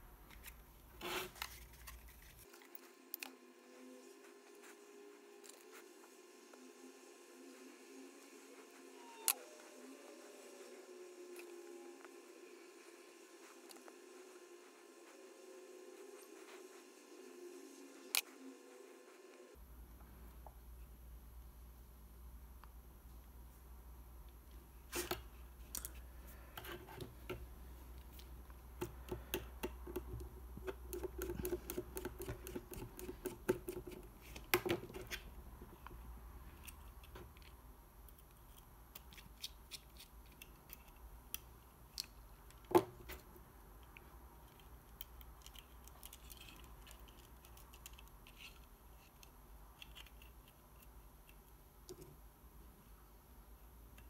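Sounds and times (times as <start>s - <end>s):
plastic parts clicking together: 36.6s - 43.2s, 43.8s - 52.1s.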